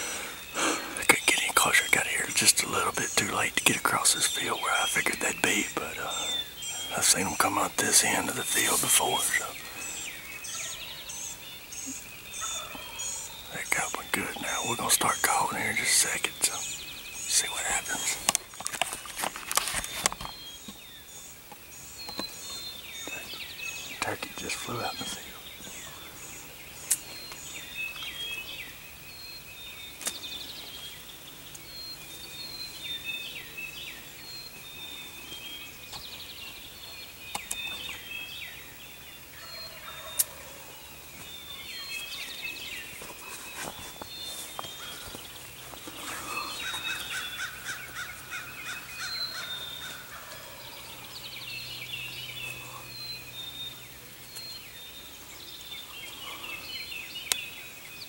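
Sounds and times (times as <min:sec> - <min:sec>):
songbirds chorus: 0:00.0 - 0:58.0.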